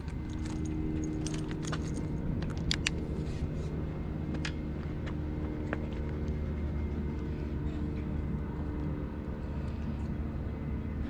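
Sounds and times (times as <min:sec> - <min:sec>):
light metallic jingling: 0:00.0 - 0:02.2
steady low hum: 0:00.0 - 0:11.0.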